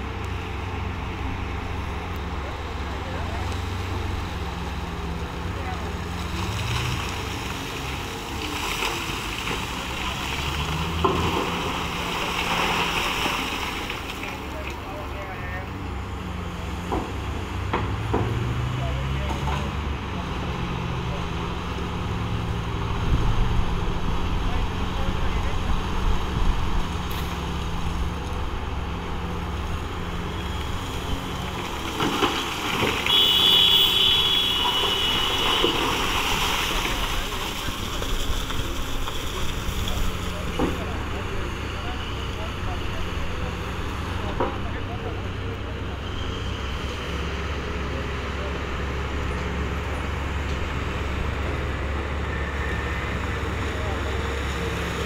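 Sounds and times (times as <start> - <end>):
diesel engine running: 0.0 - 55.0
coal falling into truck: 31.6 - 33.2.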